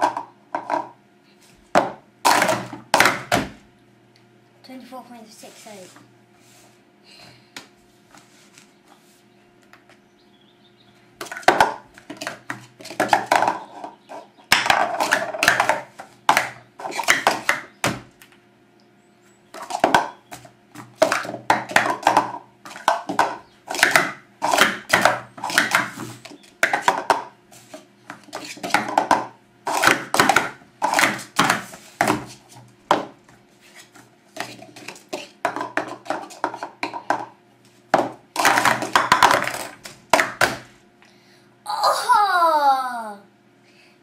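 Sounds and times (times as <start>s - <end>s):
plastic cups clattering: 11.2s - 13.9s, 14.5s - 17.6s, 20.8s - 26.0s, 26.6s - 27.3s, 28.1s - 33.1s, 34.4s - 37.3s, 37.9s - 40.6s.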